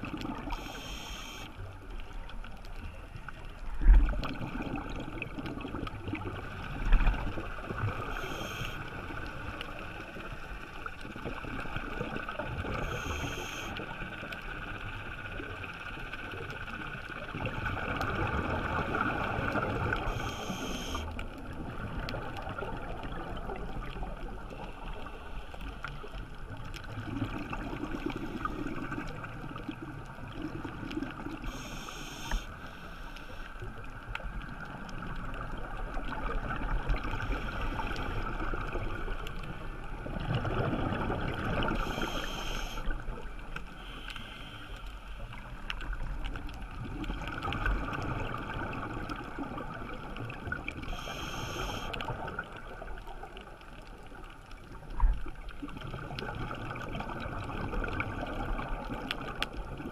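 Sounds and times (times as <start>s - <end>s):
hiss of water: 0.4s - 1.5s, 8.1s - 8.9s, 12.8s - 13.8s, 19.9s - 21.1s, 31.4s - 33.6s, 41.5s - 42.9s, 43.7s - 45.3s, 50.8s - 52.3s
regulator inhalation hiss: 0.6s - 1.5s, 31.5s - 33.4s, 41.8s - 42.9s, 50.9s - 51.9s.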